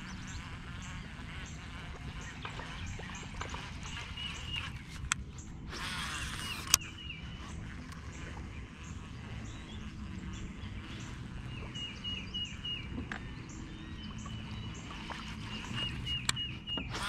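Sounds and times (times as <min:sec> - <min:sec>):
sharp click: 0:05.8 - 0:06.9.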